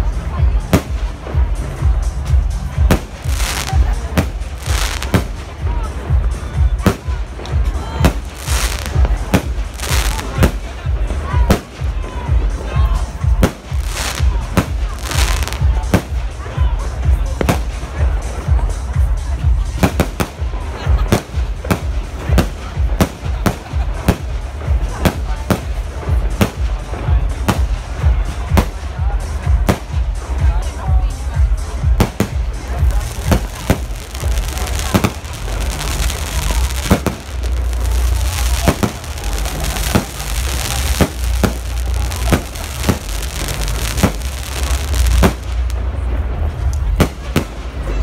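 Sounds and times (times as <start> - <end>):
fireworks crackling: 0.0 - 30.8, 31.6 - 48.0
continuous low rumble: 20.5 - 48.0
firework shells bursting: 32.1 - 45.8.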